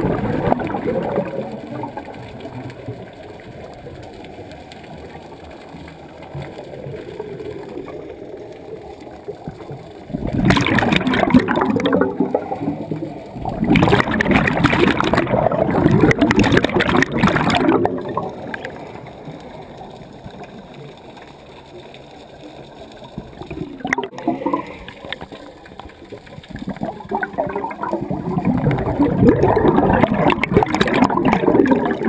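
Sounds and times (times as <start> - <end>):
low murmur of water: 0.0 - 32.0
underwater bubbles gurgling: 0.0 - 32.0.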